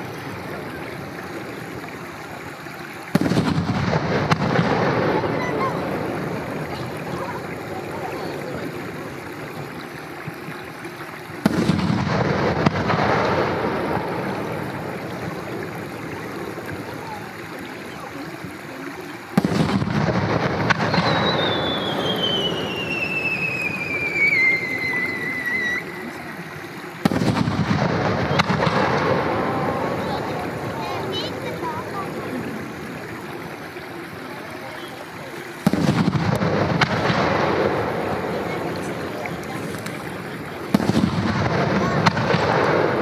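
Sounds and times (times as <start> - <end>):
firework booms with echo: 3.1 - 7.2, 11.4 - 15.4, 19.4 - 25.6, 27.0 - 31.3, 35.6 - 39.1, 40.5 - 43.0
descending firework whistle: 20.6 - 26.3.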